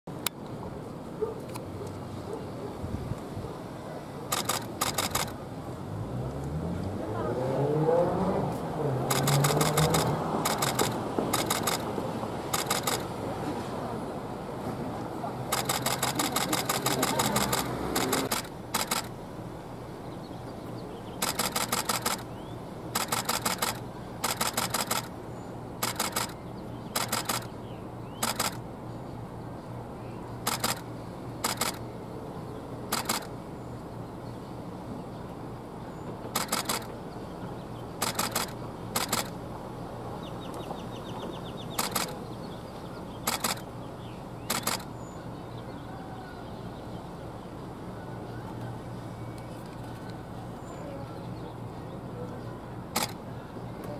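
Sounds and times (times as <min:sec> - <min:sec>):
camera shutter bursts: 0:04.3 - 0:05.4, 0:09.0 - 0:11.9, 0:12.5 - 0:13.0, 0:15.5 - 0:19.1, 0:21.2 - 0:22.3, 0:22.9 - 0:25.1, 0:25.8 - 0:27.5, 0:28.2 - 0:28.6, 0:30.4 - 0:30.8, 0:31.4 - 0:31.8, 0:32.9 - 0:33.3, 0:36.4 - 0:36.9, 0:38.0 - 0:39.4, 0:41.8 - 0:42.2, 0:43.2 - 0:43.7, 0:44.4 - 0:44.9, 0:53.0 - 0:53.2.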